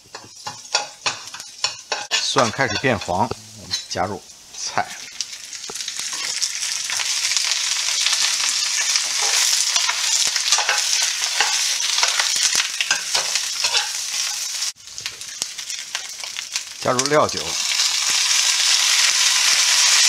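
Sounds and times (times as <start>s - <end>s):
ladle scraping and knocking pan: 0.0s - 4.0s, 12.9s - 14.5s
greens sizzling in oil: 0.0s - 20.0s.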